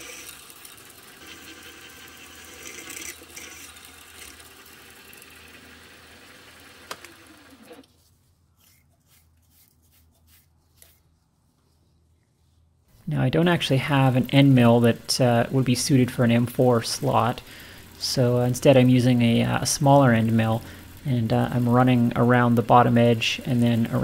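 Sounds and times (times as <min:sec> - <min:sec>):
mill drilling through steel: 0:00.0 - 0:07.8, 0:16.3 - 0:24.0.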